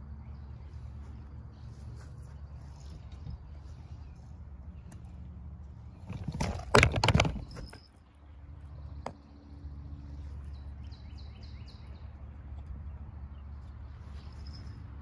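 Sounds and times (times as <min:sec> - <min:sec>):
steady low rumble: 0:00.0 - 0:06.1
phone handling rustling and knocking: 0:06.0 - 0:07.9.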